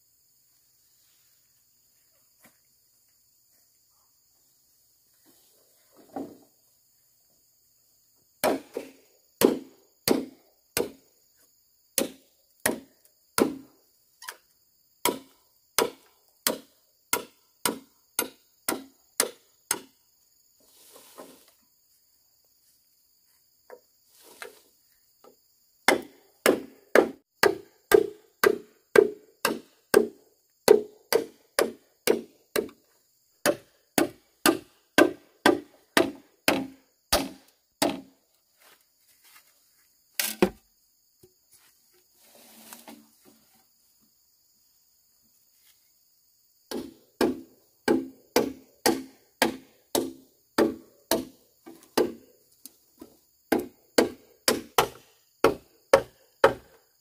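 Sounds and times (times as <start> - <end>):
blade chopping wood: 8.4 - 11.0, 12.0 - 13.7, 25.9 - 32.8, 33.4 - 38.1, 40.2 - 40.6, 46.7 - 52.2, 53.5 - 56.8.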